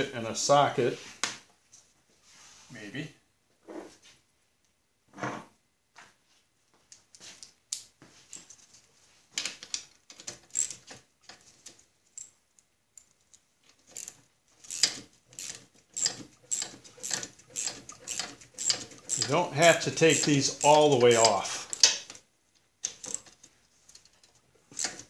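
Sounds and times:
ratchet clicking: 10.5s - 10.8s, 13.9s - 22.0s, 22.9s - 23.3s, 24.7s - 25.0s
metal tools clinking: 13.9s - 22.0s.

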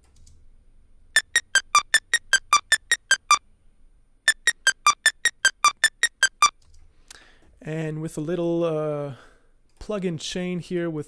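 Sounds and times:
arpeggiated synth line: 1.2s - 3.4s, 4.3s - 6.5s.

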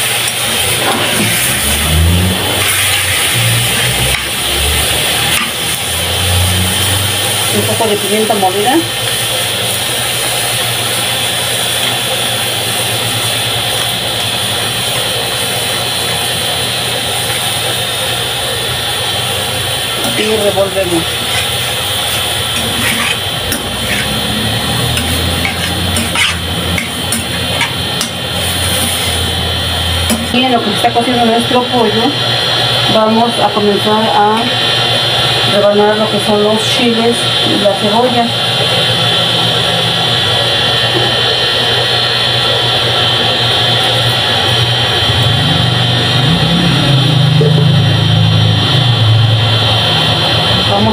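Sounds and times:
mechanical roar: 0.0s - 9.1s, 12.9s - 32.7s, 36.8s - 50.9s
metal spoon scraping a pot: 21.0s - 29.3s.

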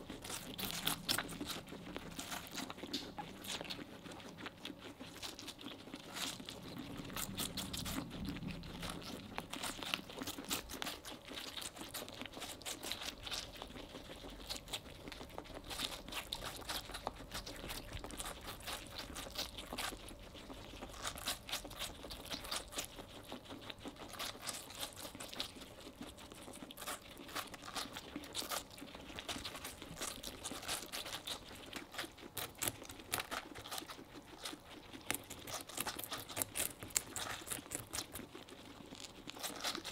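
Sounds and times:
guinea pigs chewing watermelon: 0.0s - 39.9s.

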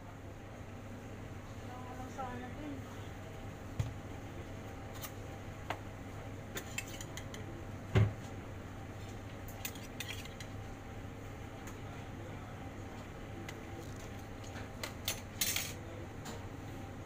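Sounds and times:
steady low hum: 0.0s - 17.0s
thud on counter: 7.9s - 8.2s.

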